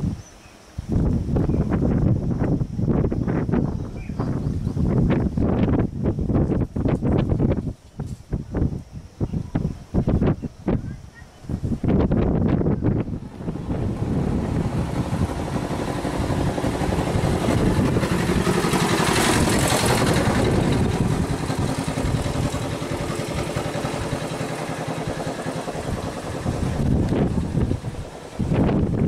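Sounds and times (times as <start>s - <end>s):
boat engine rumbling: 9.8s - 29.0s.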